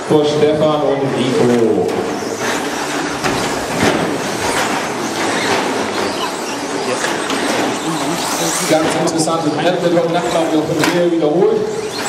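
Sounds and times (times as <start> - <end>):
rc truck motors and tyres: 2.1 - 9.4, 11.6 - 12.0.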